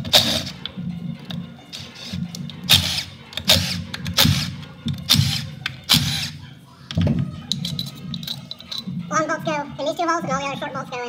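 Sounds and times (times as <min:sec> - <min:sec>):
faint background music: 0:00.0 - 0:11.0
ratchet wrench clicking: 0:02.7 - 0:06.4.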